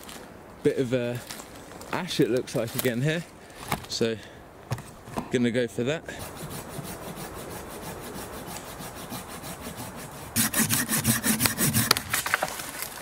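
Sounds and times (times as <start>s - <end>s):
hand saw cutting branch: 6.1s - 13.0s.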